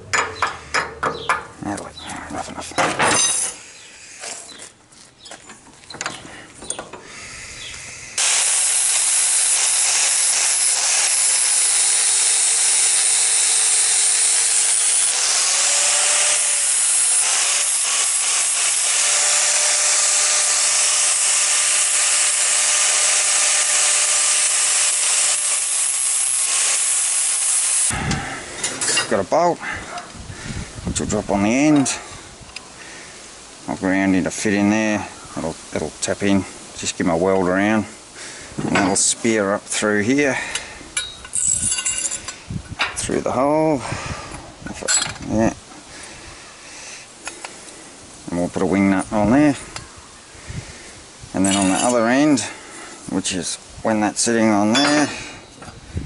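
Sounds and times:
angle grinder grinding steel: 0:07.1 - 0:29.2, 0:51.4 - 0:52.5.

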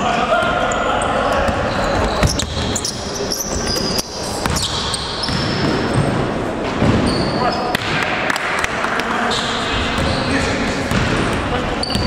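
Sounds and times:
sneaker squeaks on floor: 0:01.4 - 0:07.8, 0:09.3 - 0:12.0
basketball bouncing on court: 0:04.4 - 0:08.0, 0:09.9 - 0:12.0.

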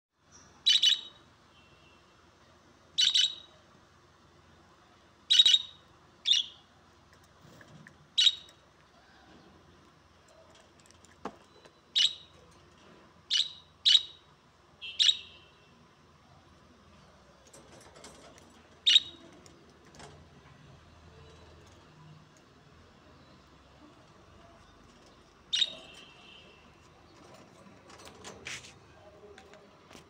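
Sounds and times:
budgerigars chirping: 0:25.6 - 0:25.9.

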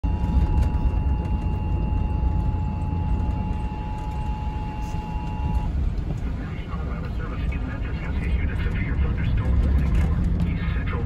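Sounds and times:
two-tone alert signal on radio: 0:00.0 - 0:05.7
road and engine rumble: 0:00.0 - 0:11.0.

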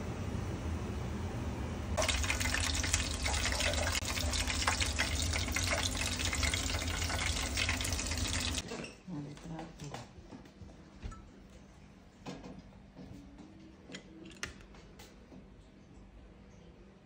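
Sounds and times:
hot oil sizzling and crackling: 0:02.0 - 0:08.6.

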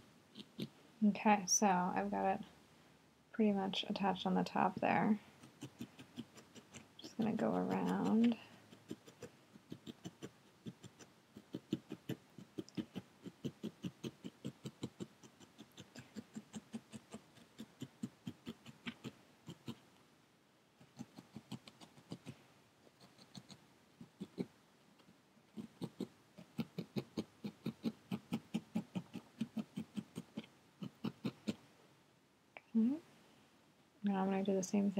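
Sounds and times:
felting needle poking wool: 0:04.1 - 0:19.9, 0:20.8 - 0:31.6.

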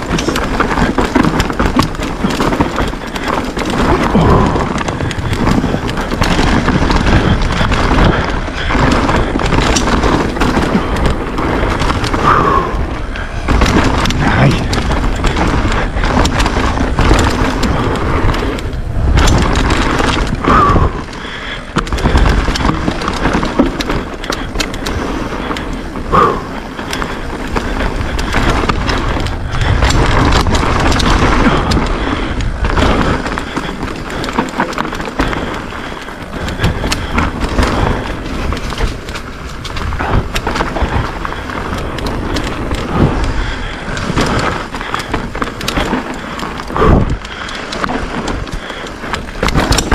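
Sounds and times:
bike rattling: 0:00.0 - 0:49.9
wind noise on microphone: 0:00.0 - 0:49.9.

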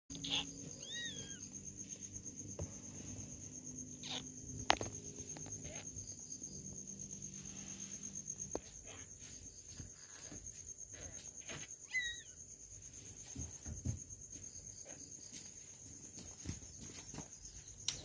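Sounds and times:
kitten mewing: 0:00.1 - 0:01.4, 0:04.0 - 0:04.4.

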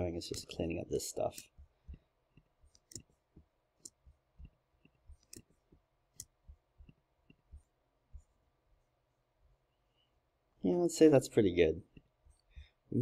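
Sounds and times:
computer mouse clicks and taps: 0:00.2 - 0:00.6, 0:01.2 - 0:08.3.

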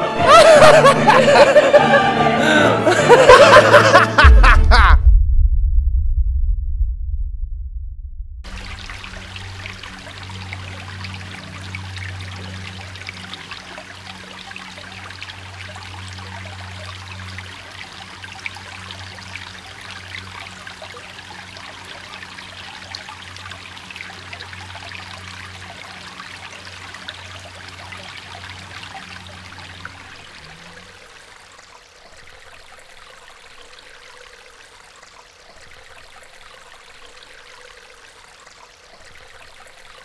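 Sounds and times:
stream trickling: 0:08.4 - 0:40.0.

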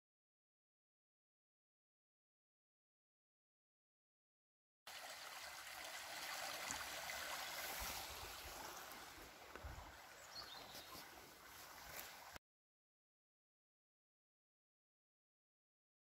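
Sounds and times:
flowing water rushing: 0:04.9 - 0:12.4.

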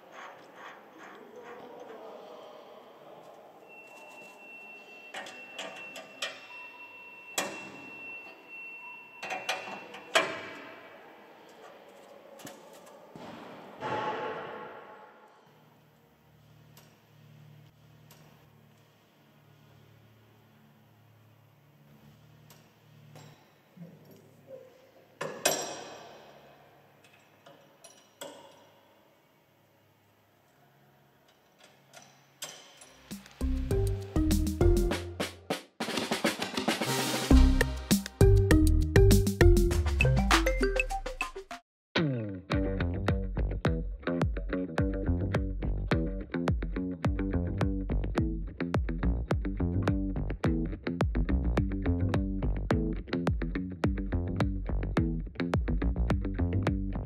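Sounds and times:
faint steady high tone: 0:03.6 - 0:10.2.

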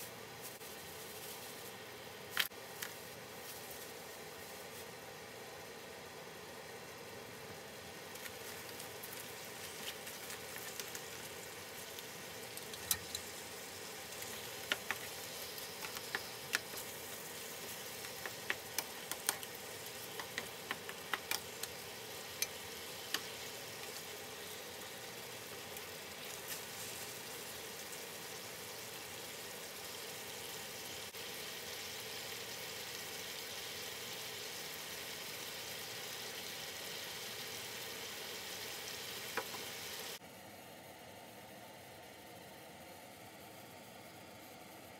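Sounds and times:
food sizzling in skillet: 0:06.4 - 0:40.2
wooden spatula clicking in pan: 0:14.6 - 0:15.1, 0:18.0 - 0:21.8.

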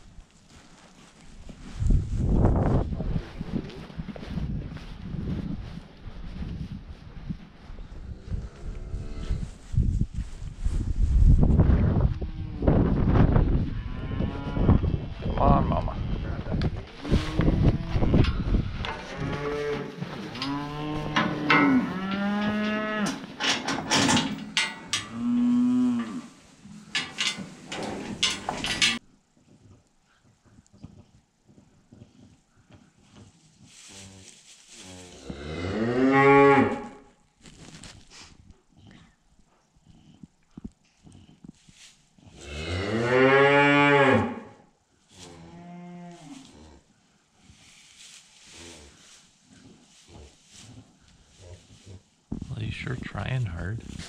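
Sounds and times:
cattle mooing: 0:19.0 - 0:23.3
metal pen gates clanking: 0:20.3 - 0:25.3, 0:26.9 - 0:29.0.

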